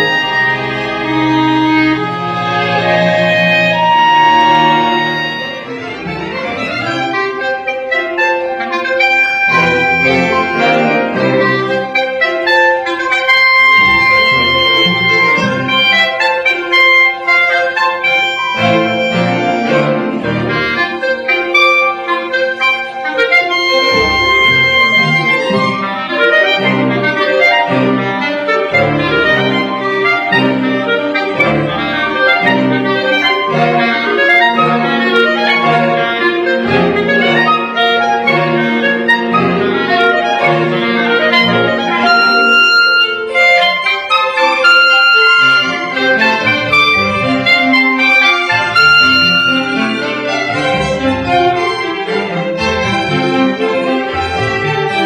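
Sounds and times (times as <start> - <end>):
orchestra playing classical music: 0.0 - 55.0.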